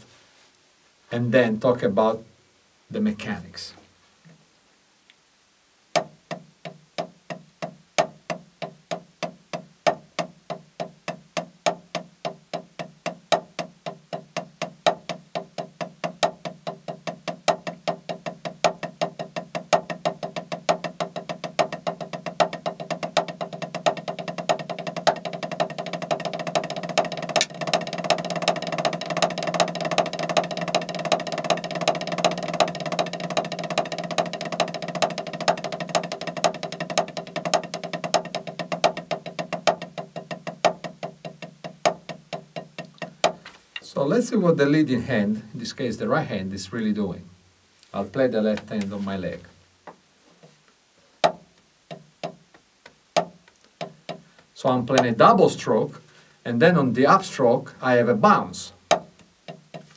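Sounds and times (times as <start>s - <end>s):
drumsticks on a practice pad: 5.9s - 43.9s, 51.2s - 55.4s, 58.8s - 59.9s.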